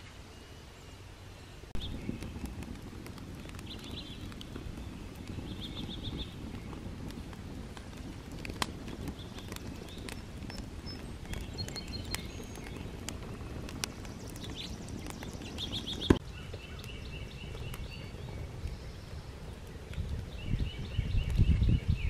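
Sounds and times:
birds chirping: 0:00.0 - 0:07.1, 0:07.8 - 0:22.0
wood fire crackling: 0:01.6 - 0:22.0
fire sharp pop: 0:01.8 - 0:16.9.

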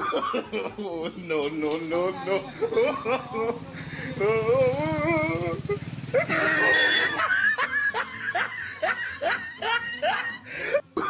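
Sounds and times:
person laughing: 0:02.4 - 0:11.0.

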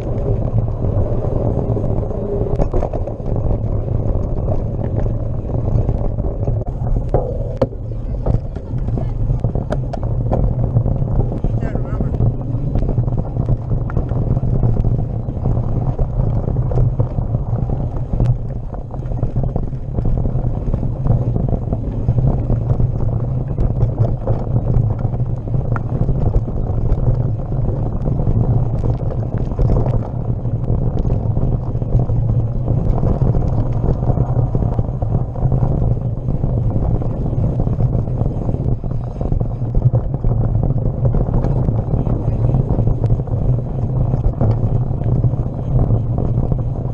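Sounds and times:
bike rattles and clicks: 0:00.0 - 0:46.9
bike tyre noise on dirt: 0:00.0 - 0:46.9
wind buffeting microphone: 0:00.0 - 0:46.9.

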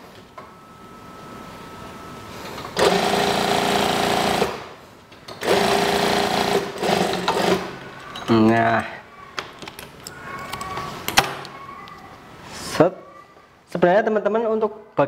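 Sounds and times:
sewing machine stitching: 0:02.8 - 0:04.6, 0:05.4 - 0:07.8.

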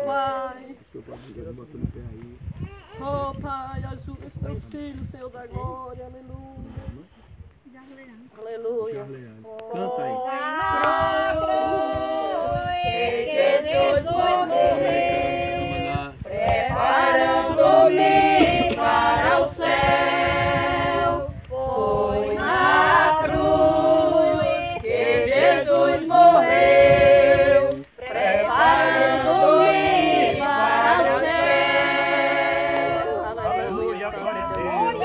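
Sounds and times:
group singing a hymn unaccompanied: 0:00.0 - 0:00.8, 0:08.5 - 0:35.0.

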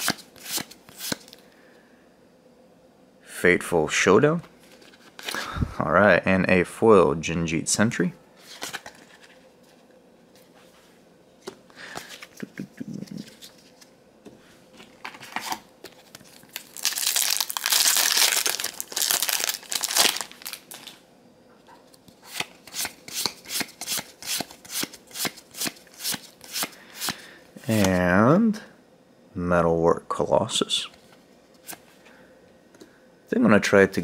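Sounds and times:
foil wrapper crinkling: 0:15.0 - 0:21.0.

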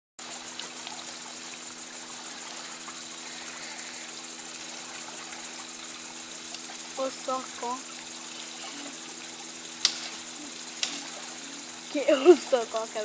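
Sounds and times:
cicadas buzzing: 0:00.2 - 0:13.0
low steady hum: 0:00.2 - 0:13.0.

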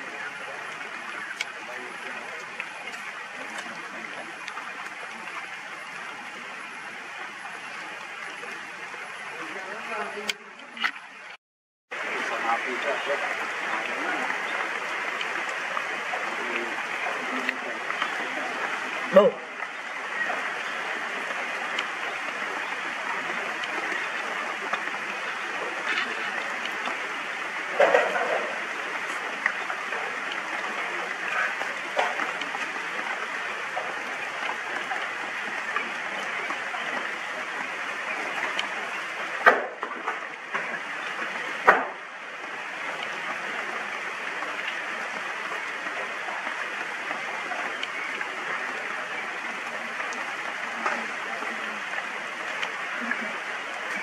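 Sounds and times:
steady rain hiss: 0:00.0 - 0:54.0
sharp drip ticks: 0:00.1 - 0:11.4, 0:44.2 - 0:53.1.

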